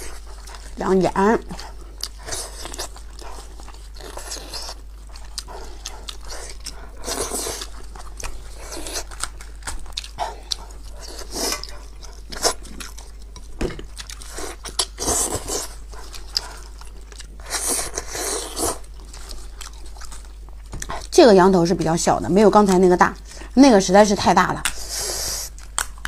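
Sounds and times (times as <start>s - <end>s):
person biting and chewing: 2.0s - 21.0s, 25.5s - 26.0s.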